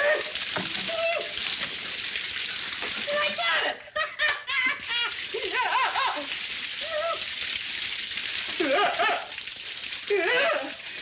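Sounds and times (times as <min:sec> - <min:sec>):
water gushing from pipes: 0:00.0 - 0:11.0
man yelping and whooping: 0:03.2 - 0:04.8, 0:06.8 - 0:07.3.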